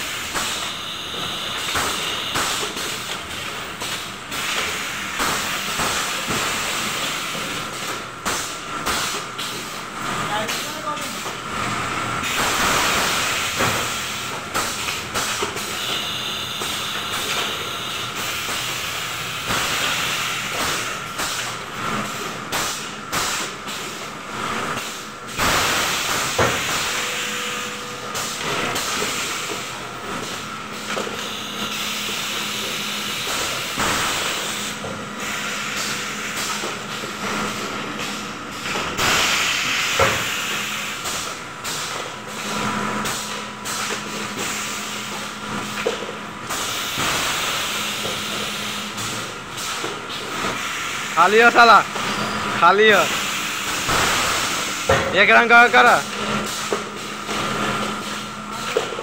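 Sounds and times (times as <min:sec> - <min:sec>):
machine steady mechanical hiss: 0:00.0 - 0:59.0.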